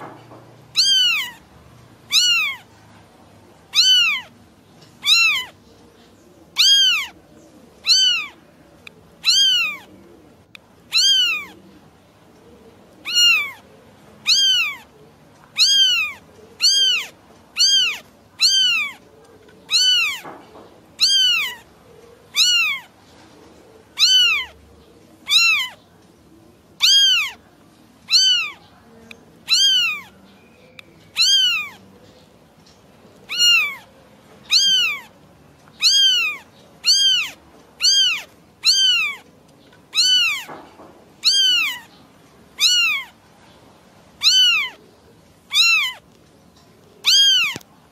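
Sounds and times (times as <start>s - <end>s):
kitten meowing: 0.7s - 1.4s, 2.1s - 2.7s, 3.7s - 4.3s, 5.0s - 5.6s, 6.6s - 7.2s, 7.8s - 8.4s, 9.2s - 9.9s, 10.9s - 11.6s, 13.0s - 13.6s, 14.2s - 14.9s, 15.6s - 19.0s, 19.7s - 20.3s, 21.0s - 21.7s, 22.3s - 22.9s, 24.0s - 24.5s, 25.2s - 25.8s, 26.8s - 27.4s, 28.1s - 28.6s, 29.4s - 30.1s, 31.1s - 31.8s, 33.3s - 33.9s, 34.5s - 35.1s, 35.8s - 39.2s, 39.9s - 40.5s, 41.2s - 41.9s, 42.6s - 43.2s, 44.2s - 44.8s, 45.5s - 46.0s, 47.0s - 47.7s.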